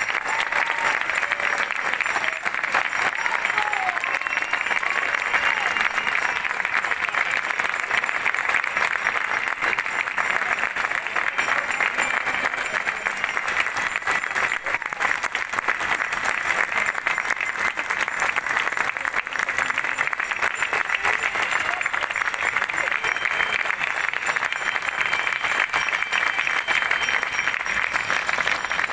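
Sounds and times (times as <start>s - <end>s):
crowd applauding: 0.0s - 28.9s.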